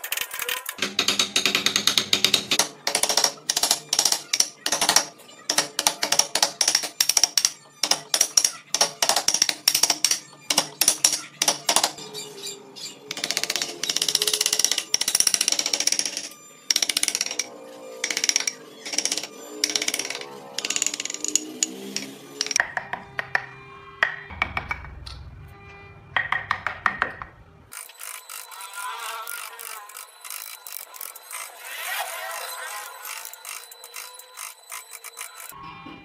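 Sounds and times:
background music: 0.0s - 36.0s
mallet striking chisel into wood: 18.1s - 25.0s, 26.2s - 27.3s.

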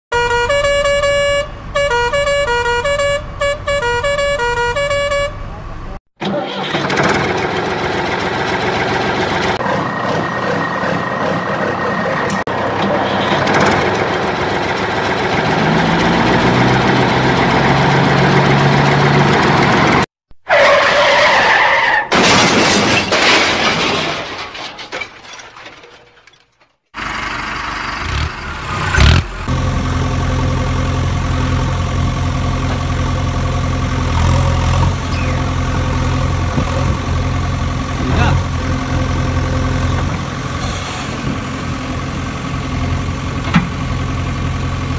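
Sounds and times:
heavy engine idling: 6.7s - 20.0s, 27.0s - 44.9s
engine revving: 6.8s - 20.1s, 27.3s - 44.9s.

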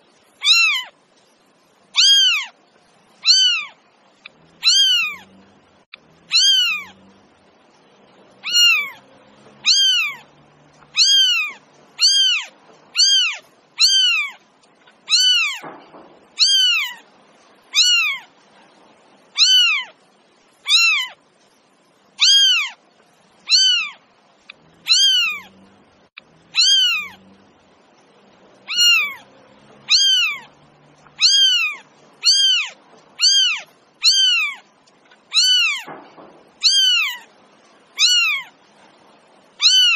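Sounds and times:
kitten meowing: 0.4s - 0.9s, 2.0s - 2.5s, 3.2s - 3.8s, 4.6s - 5.3s, 6.3s - 7.0s, 8.4s - 9.0s, 9.6s - 10.3s, 10.9s - 14.4s, 15.1s - 15.7s, 16.4s - 17.0s, 17.7s - 18.3s, 19.4s - 20.0s, 20.6s - 21.2s, 22.2s - 22.8s, 23.5s - 24.0s, 24.8s - 25.6s, 26.5s - 27.2s, 28.6s - 29.2s, 29.8s - 34.6s, 35.3s - 35.9s, 36.6s - 37.3s, 38.0s - 38.5s, 39.6s - 39.9s.

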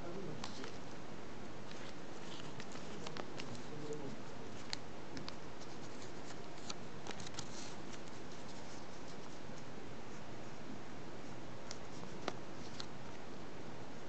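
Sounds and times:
paper folding ticks and rustles: 0.1s - 0.9s, 1.6s - 10.2s, 11.6s - 13.2s.

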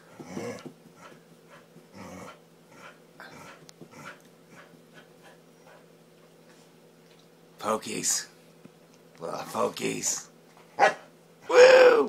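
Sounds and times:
dog panting: 0.1s - 5.9s.

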